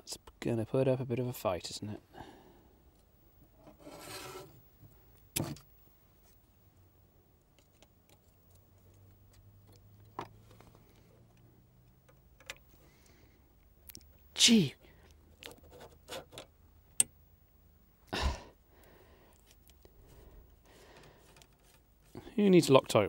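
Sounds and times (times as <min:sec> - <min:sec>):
rasping scrape of metal tool: 0:03.7 - 0:04.6.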